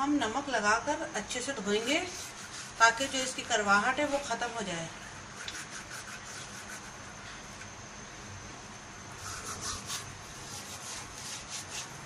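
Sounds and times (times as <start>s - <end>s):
hands scrubbing with salt: 1.7s - 4.5s, 5.4s - 7.1s, 9.2s - 12.0s.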